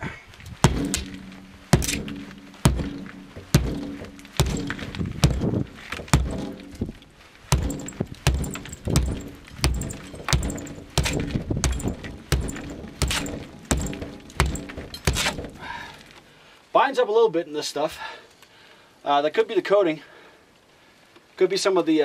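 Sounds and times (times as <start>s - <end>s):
tomahawk chopping into wall: 0.6s - 15.9s.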